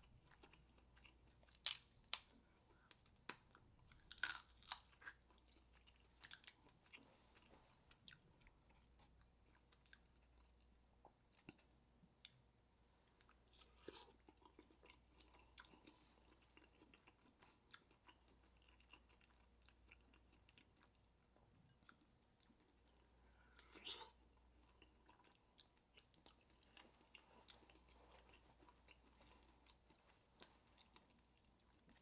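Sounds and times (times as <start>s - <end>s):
chewing and mouth sounds: 13.0s - 32.0s.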